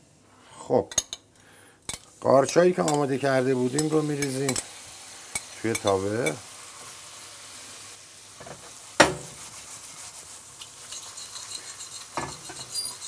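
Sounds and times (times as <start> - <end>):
mushrooms sizzling in a frying pan: 1.9 - 13.0
utensil knocking on a pan: 8.4 - 9.4
utensil scraping a pan: 8.5 - 13.0.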